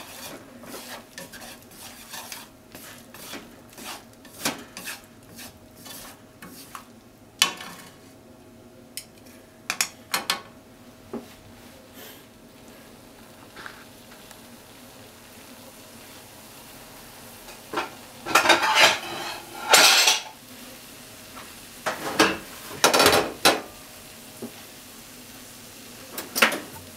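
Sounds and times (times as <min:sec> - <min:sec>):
faint sizzle: 0:00.0 - 0:26.9
chopsticks clattering in a frying pan: 0:17.5 - 0:20.4.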